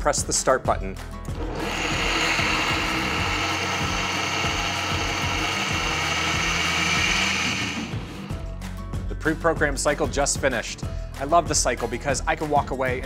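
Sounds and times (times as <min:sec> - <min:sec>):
blender whirring: 0:01.3 - 0:08.4.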